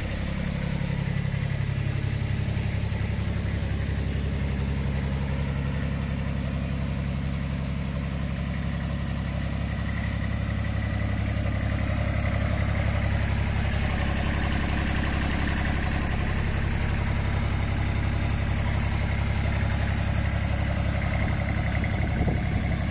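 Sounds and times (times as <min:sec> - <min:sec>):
diesel engine idling: 0:00.0 - 0:22.9.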